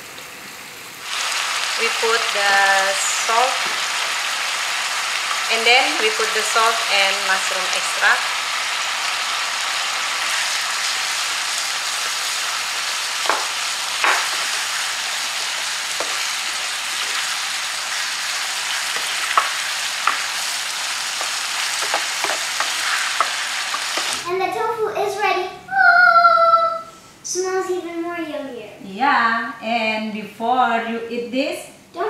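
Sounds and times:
tofu sizzling in a frying pan: 0.0 - 24.2
spatula scraping and tapping pan: 12.0 - 17.4, 18.0 - 24.2.

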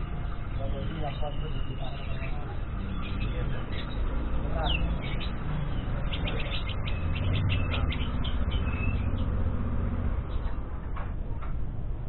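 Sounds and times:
bird chipping and whistling: 1.1 - 9.4.

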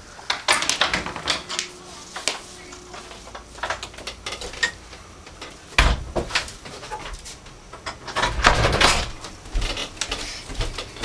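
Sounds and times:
footsteps walking: 1.0 - 5.7, 9.1 - 11.0.

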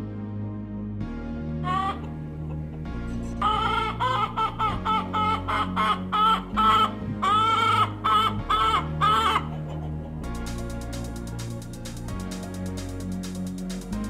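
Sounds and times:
background music: 0.0 - 14.0
hen clucking: 1.6 - 10.2.

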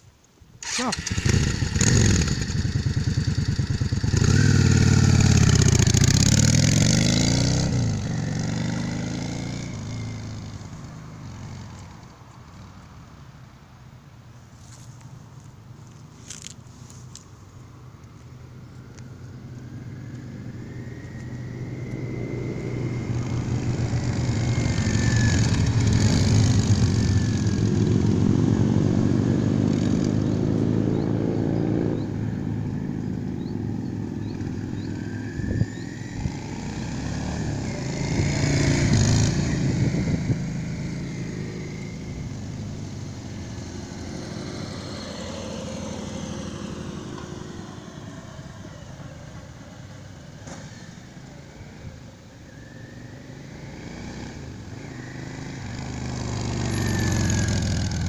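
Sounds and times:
motorcycle engine passing: 0.6 - 13.0, 18.6 - 58.0.

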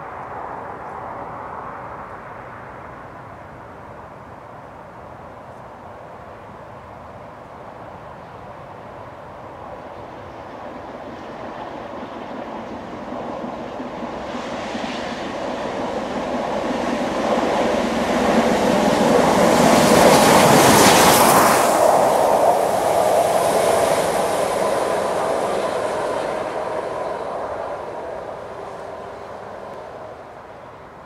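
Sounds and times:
steam locomotive passing: 7.6 - 31.0.

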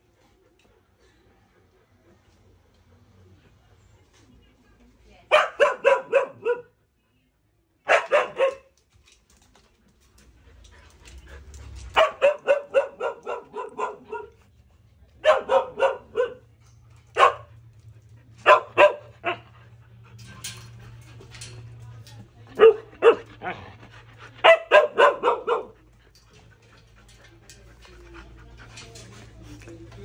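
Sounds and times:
dogs barking excitedly: 5.3 - 6.8, 7.9 - 8.8, 10.5 - 29.3.

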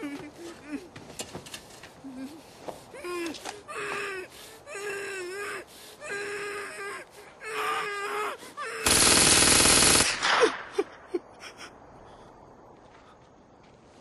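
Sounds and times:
man sobbing and wailing muffled: 0.0 - 1.0, 2.0 - 9.2
automatic gunfire: 8.9 - 10.7.

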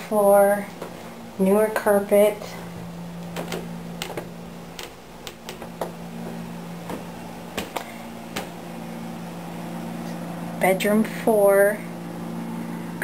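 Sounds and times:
steady low hum: 0.0 - 13.0
footsteps on stairs and tile: 2.8 - 8.6.

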